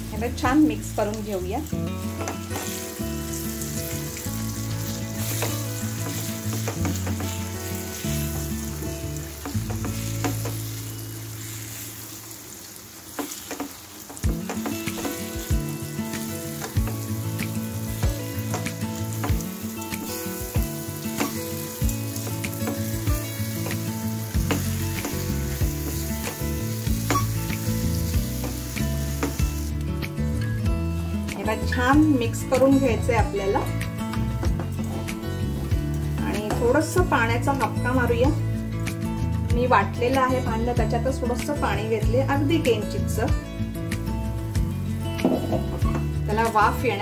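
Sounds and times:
paste sizzling in hot oil: 0.0s - 31.1s.

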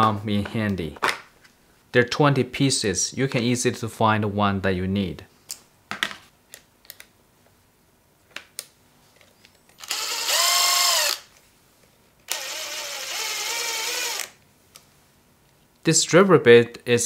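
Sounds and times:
impact driver motor whine: 9.8s - 11.2s, 12.3s - 14.4s.

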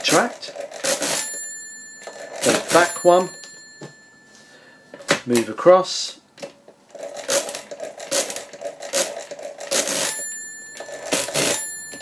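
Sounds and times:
mechanical calculator gear clatter: 0.0s - 1.4s, 6.9s - 12.0s
calculator bell ringing: 0.8s - 5.0s, 9.7s - 12.0s.

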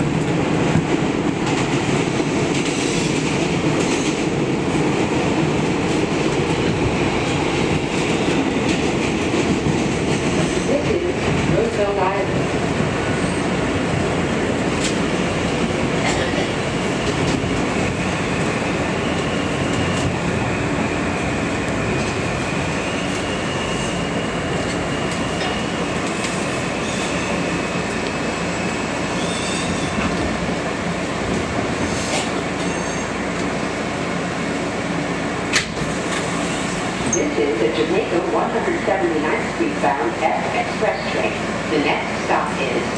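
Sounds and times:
subway train wheels rumbling: 0.0s - 42.9s
high brake squeal: 22.4s - 25.9s, 26.8s - 27.5s, 28.2s - 30.0s, 32.6s - 33.2s.

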